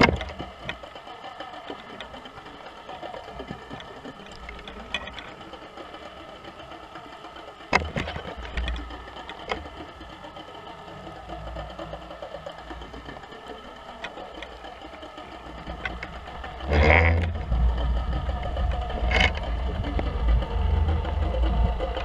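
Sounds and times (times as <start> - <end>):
boat engine heard underwater: 0.0 - 22.0.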